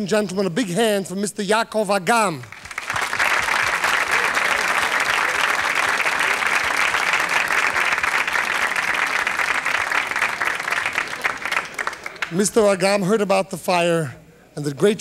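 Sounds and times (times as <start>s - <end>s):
audience applauding: 2.5s - 12.8s.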